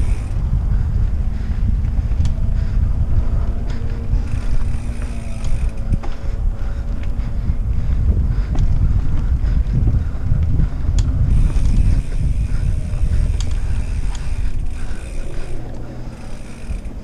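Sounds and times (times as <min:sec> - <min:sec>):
bike parts rattling: 0:00.0 - 0:17.0
wind and trail rumble: 0:00.0 - 0:17.0.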